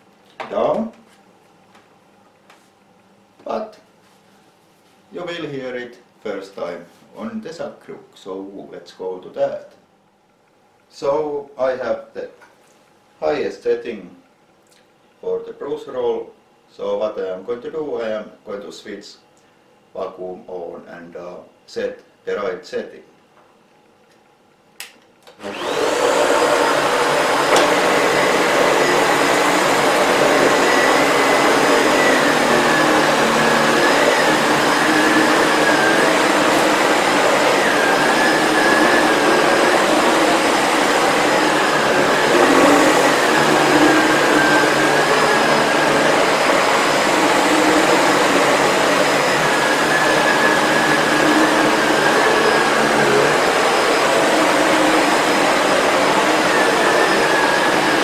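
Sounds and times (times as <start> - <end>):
vacuum cleaner motor whine: 25.3 - 58.0.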